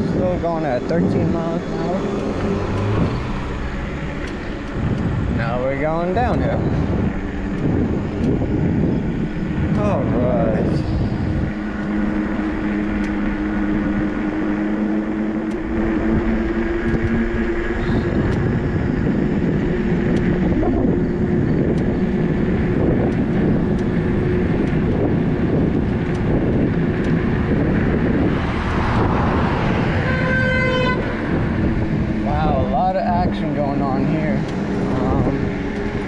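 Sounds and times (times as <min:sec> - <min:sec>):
electric motor whine: 0:00.0 - 0:36.0
wind rushing over microphone: 0:00.0 - 0:36.0
car horn toot: 0:29.8 - 0:31.6.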